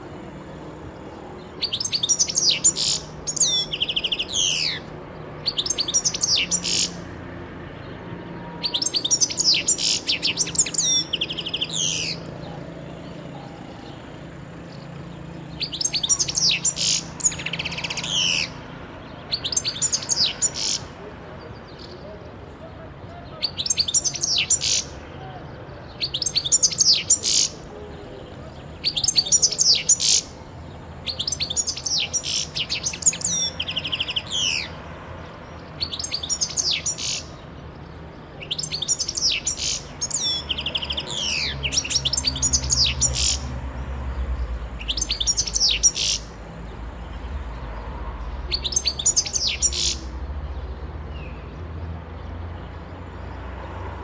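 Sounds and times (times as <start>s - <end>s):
goldfinch singing: 1.5s - 7.0s, 8.6s - 12.3s, 15.5s - 20.9s, 25.9s - 27.7s, 28.5s - 34.8s, 35.8s - 37.4s, 38.4s - 43.5s, 44.7s - 46.4s, 48.5s - 50.1s.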